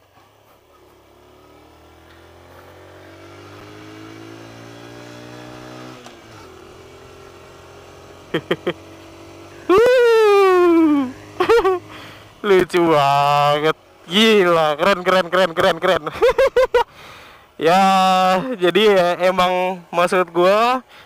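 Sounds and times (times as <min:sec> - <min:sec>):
small motorcycle engine accelerating: 0:00.0 - 0:19.2
man shouting: 0:09.7 - 0:11.3.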